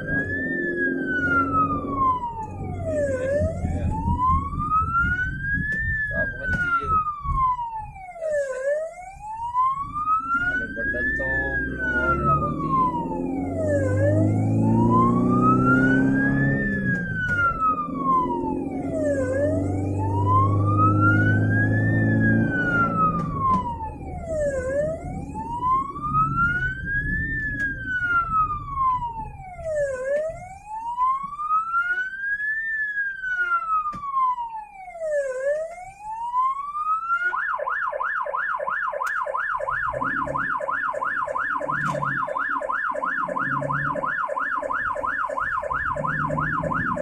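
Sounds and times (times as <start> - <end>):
ambulance siren wailing: 0.0 - 47.0.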